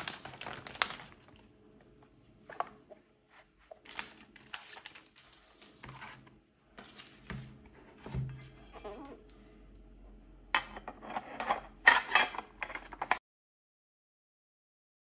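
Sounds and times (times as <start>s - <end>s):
packaging rustling: 0.0s - 1.5s, 3.7s - 6.2s.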